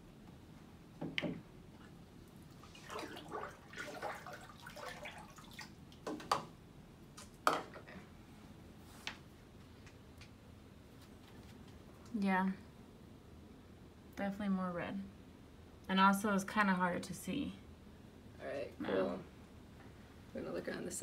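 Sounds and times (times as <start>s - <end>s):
water splashing and dripping: 2.6s - 6.3s.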